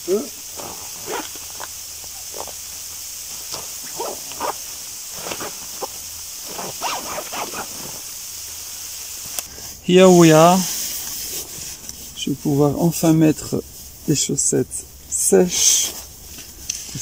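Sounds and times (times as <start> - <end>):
steady background hiss: 0.0 - 17.0
tent fabric rustling and scraping: 0.1 - 12.3.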